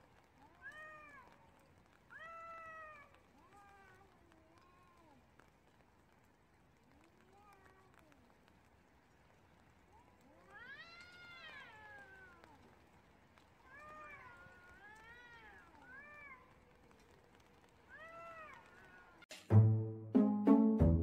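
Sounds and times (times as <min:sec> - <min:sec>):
rain hissing: 0:00.0 - 0:19.5
cats yowling: 0:00.3 - 0:05.5, 0:07.0 - 0:08.3, 0:10.0 - 0:12.9, 0:13.6 - 0:19.2.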